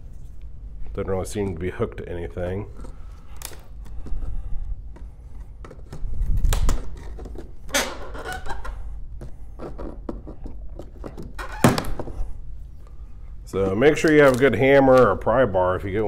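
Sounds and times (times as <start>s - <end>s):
wood creaking and cracking: 2.7s - 12.1s
nail squealing loose: 7.7s - 8.8s, 11.2s - 12.0s.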